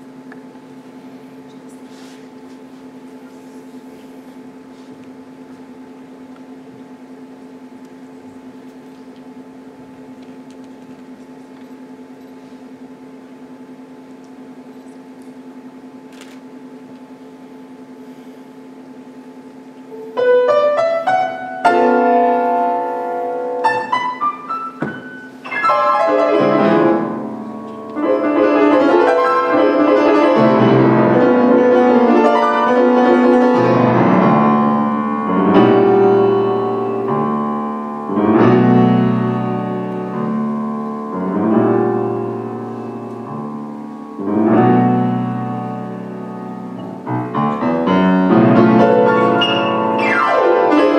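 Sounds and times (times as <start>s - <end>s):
low steady hum: 0.0s - 50.9s
grand piano playing: 19.9s - 50.9s.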